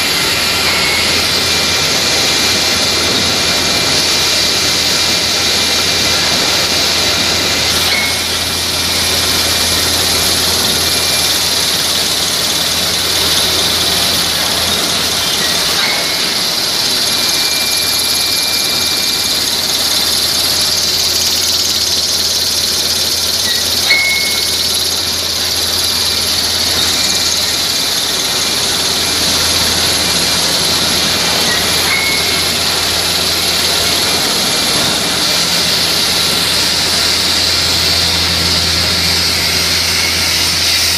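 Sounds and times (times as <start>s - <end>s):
machine noise with high hiss: 0.0s - 40.9s
brief machine squeak: 0.2s - 1.8s, 7.8s - 9.3s, 12.4s - 29.2s, 31.1s - 34.2s, 38.0s - 40.9s.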